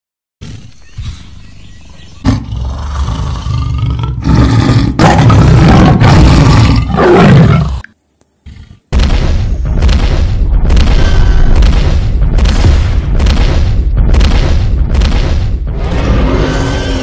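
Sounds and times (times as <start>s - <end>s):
tiger roaring: 2.2s - 7.8s.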